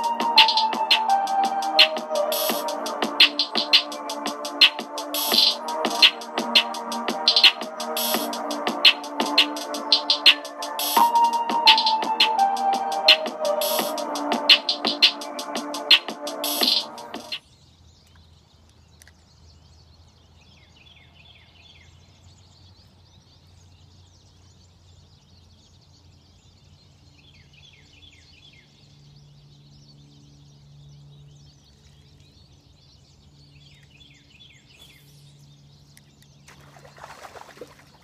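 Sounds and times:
bird chirping rapidly: 0.0s - 17.4s.

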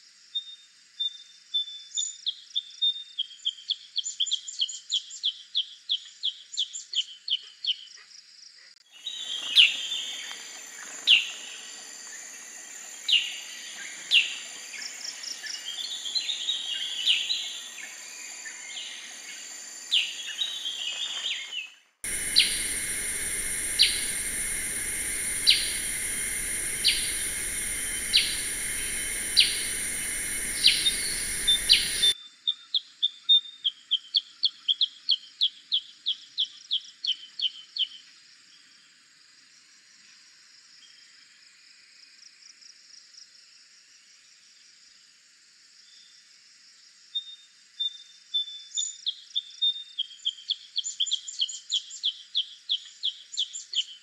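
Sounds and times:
steady background hiss: 9.0s - 21.5s, 22.1s - 32.2s
bird calling sharp notes: 22.1s - 32.2s.

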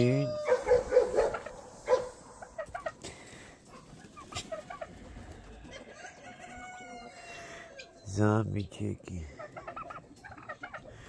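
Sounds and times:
long drawn-out fowl call: 0.0s - 2.5s
chickens clucking: 0.0s - 11.0s.

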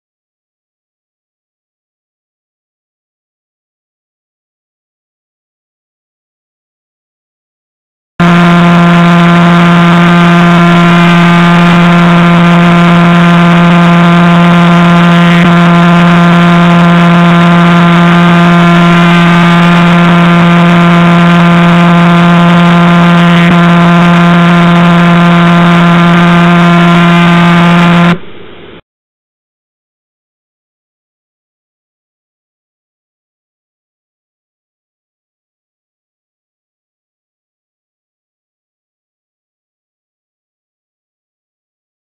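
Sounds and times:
low hum with overtones: 8.2s - 28.8s.

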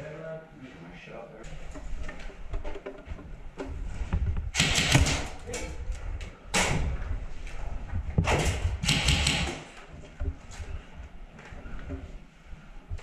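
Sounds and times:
airsoft guns firing bursts: 4.6s - 5.3s, 8.8s - 9.7s
knocks and clicks: 8.2s - 9.6s.

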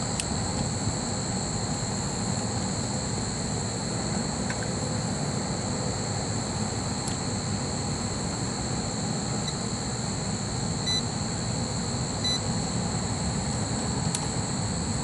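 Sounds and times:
meter beeping: 10.8s - 11.1s, 12.2s - 12.5s.

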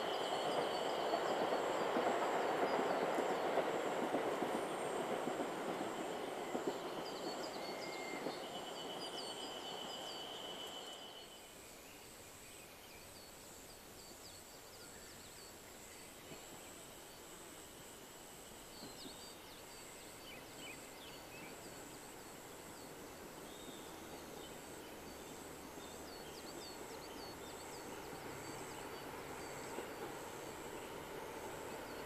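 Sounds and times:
diesel train running: 22.4s - 32.0s.

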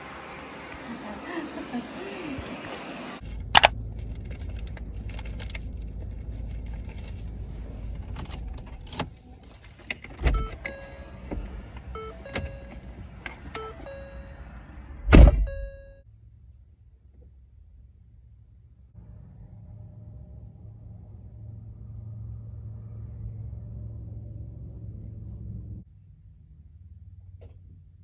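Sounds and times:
short electronic beeps: 12.0s - 12.8s, 13.6s - 14.4s
steady low rumble: 14.9s - 27.4s.

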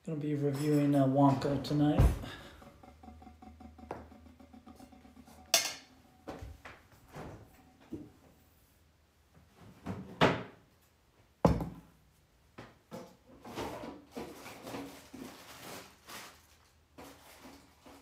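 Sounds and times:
rustling of food items: 13.3s - 18.0s.

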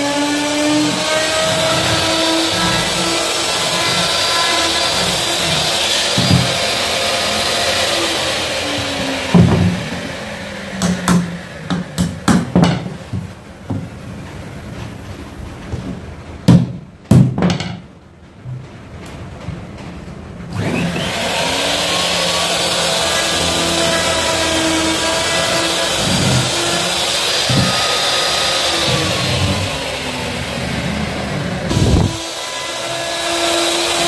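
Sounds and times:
electric router whining: 0.0s - 11.7s, 20.5s - 34.0s
hammer knocking on board: 10.8s - 13.9s.

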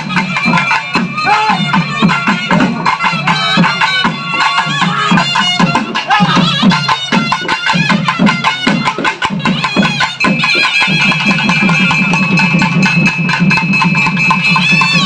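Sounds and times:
fast dense drumming: 0.0s - 15.0s
shrill reed-pipe melody: 0.0s - 15.0s.

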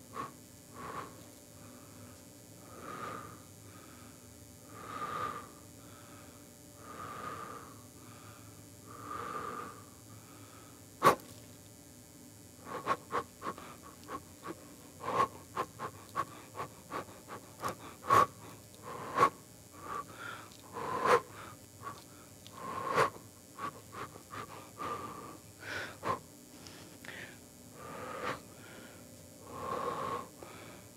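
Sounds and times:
person breathing heavily: 0.0s - 11.2s, 12.6s - 30.9s
sharp snorts and sniffs: 11.0s - 11.3s, 12.6s - 20.1s.

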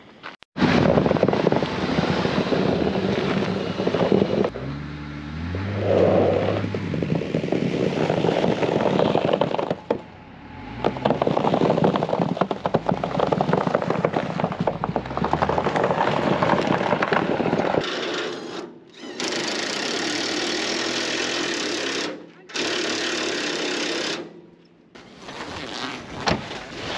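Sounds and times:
tyres crunching on snow: 0.2s - 4.6s, 5.3s - 10.0s, 10.6s - 17.8s
vehicle engine running: 0.8s - 16.0s.

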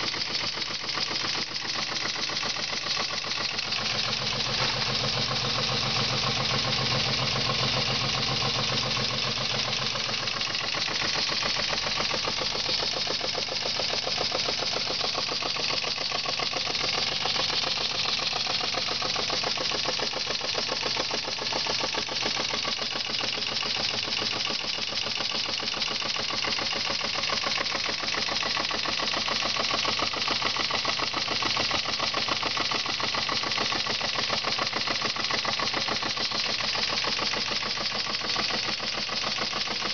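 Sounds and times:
model steam engine chuffing: 0.0s - 39.9s.

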